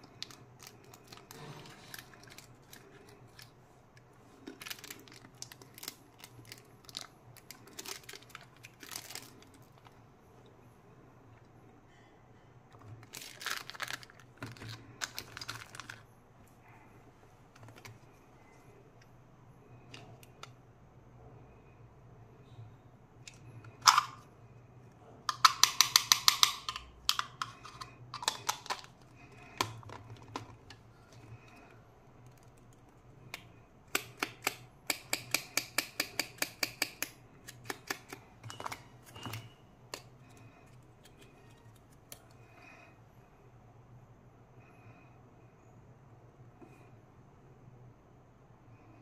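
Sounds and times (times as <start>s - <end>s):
plastic toys being handled: 0.0s - 10.1s, 12.7s - 16.1s, 17.4s - 18.6s, 23.2s - 24.3s, 25.2s - 42.4s.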